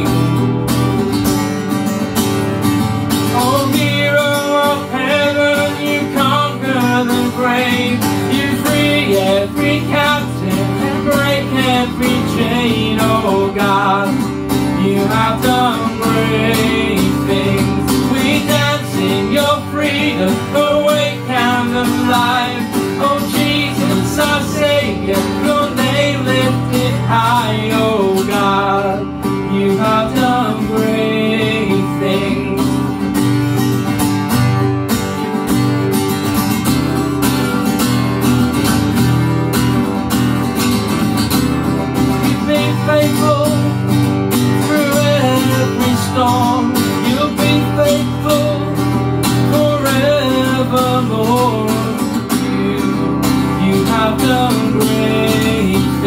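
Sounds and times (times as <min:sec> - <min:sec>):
acoustic guitar strumming: 0:00.0 - 0:56.0
man singing: 0:03.2 - 0:33.2, 0:42.1 - 0:56.0.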